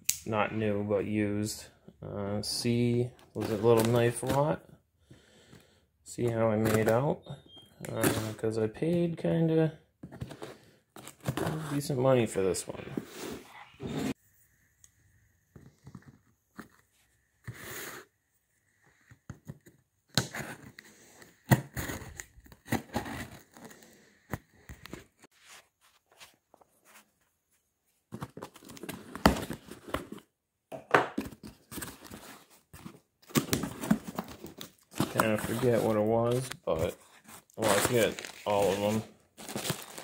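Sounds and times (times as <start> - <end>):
packing tape cut and torn: 21.4 - 23.8
packing paper crinkling: 33.3 - 40.0.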